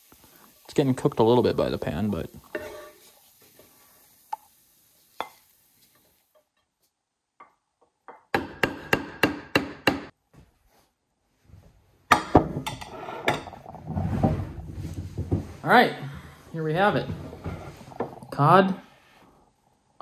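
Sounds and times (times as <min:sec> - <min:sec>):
knife chopping on wooden board: 0:08.3 - 0:10.1.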